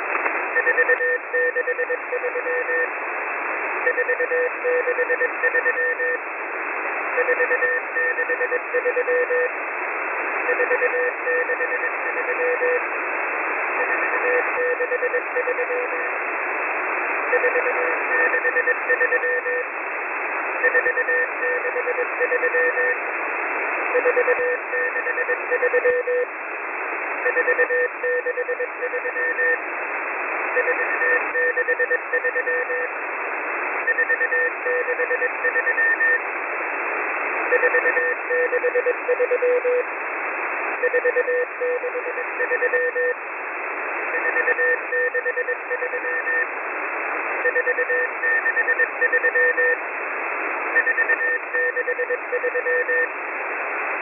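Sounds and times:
shortwave receiver hiss: 0.0 - 54.0
morse code beeping tones: 24.0 - 26.2, 40.8 - 43.2, 47.4 - 49.8, 50.8 - 53.1.

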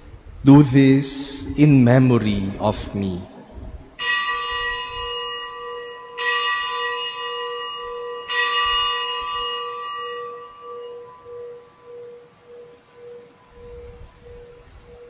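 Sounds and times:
low pulsing hum: 0.0 - 6.1
bell ringing: 4.0 - 14.5.

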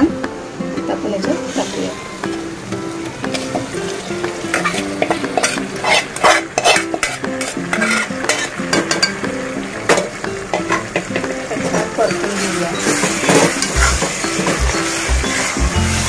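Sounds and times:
oil sizzling: 0.0 - 16.0
soft background music: 0.0 - 16.0
spoon scraping steel bowl: 4.5 - 8.6.

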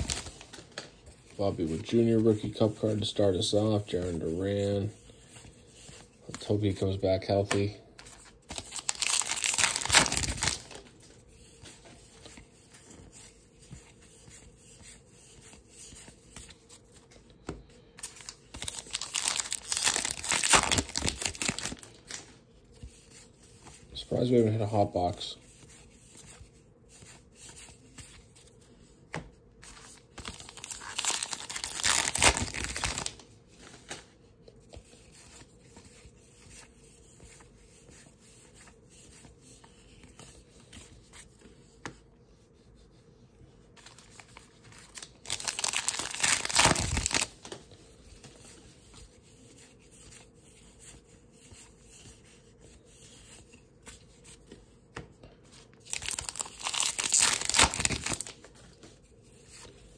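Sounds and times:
wrappers torn and crinkled: 0.0 - 0.7, 8.5 - 10.8, 18.2 - 22.2, 30.2 - 33.2, 44.9 - 47.5, 55.9 - 58.4
cards rustling and clicking: 0.0 - 42.0, 43.8 - 59.9.

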